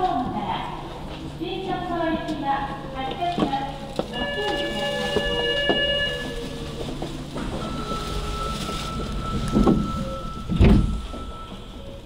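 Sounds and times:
subway train rumble: 0.0 - 12.0.

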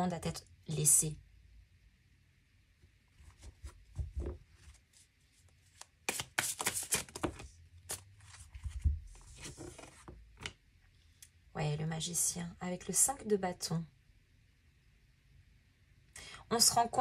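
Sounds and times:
cards shuffling and flicking: 5.6 - 10.6
cards tapping and sliding on cloth: 5.8 - 8.0.

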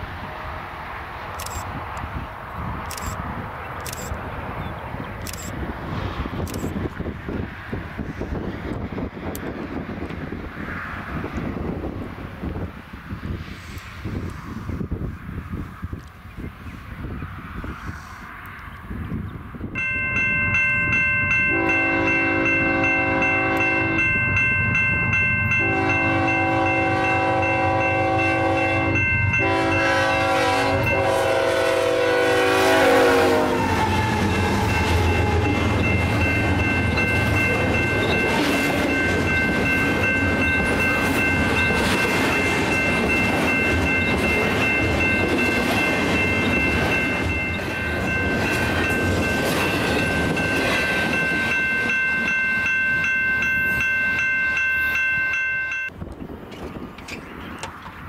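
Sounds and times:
freight train rumbling and clattering: 0.0 - 17.8, 18.9 - 58.0
crossing warning bell: 1.4 - 1.8, 2.6 - 3.2, 19.6 - 56.0
locomotive horn chords: 21.4 - 24.2, 25.5 - 35.9.

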